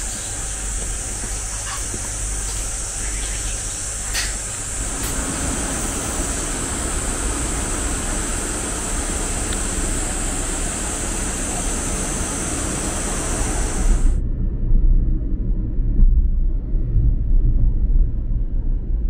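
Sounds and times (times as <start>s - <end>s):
constant high hiss: 0.0s - 14.2s
roadside rushing noise: 0.0s - 14.2s.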